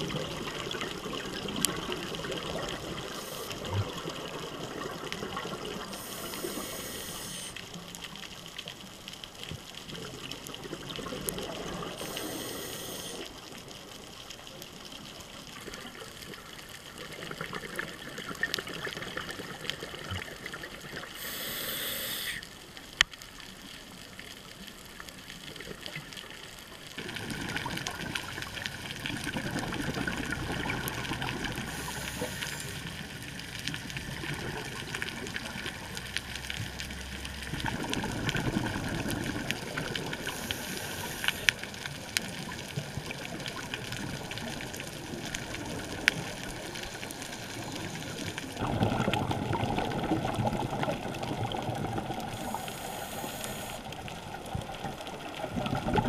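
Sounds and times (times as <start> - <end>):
exhaled bubbles gurgling: 0.0 - 22.7, 23.6 - 56.0
regulator hiss: 3.0 - 3.7, 5.8 - 7.7, 11.9 - 13.4, 21.1 - 22.5, 31.6 - 33.0, 40.2 - 41.6, 52.3 - 54.0.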